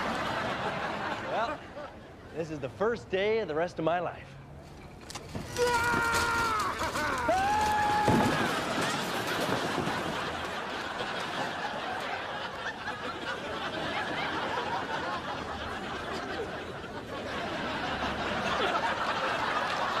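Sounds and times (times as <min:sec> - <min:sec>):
studio audience laughing: 0:00.0 - 0:01.6, 0:08.8 - 0:20.0.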